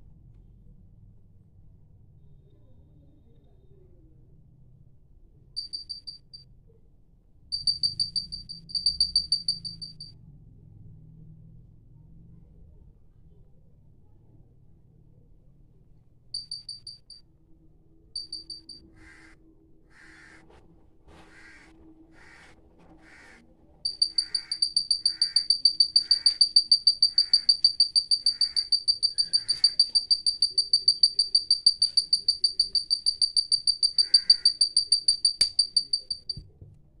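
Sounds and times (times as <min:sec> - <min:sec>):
buzzer beeping rapidly: 0:23.9 - 0:36.4.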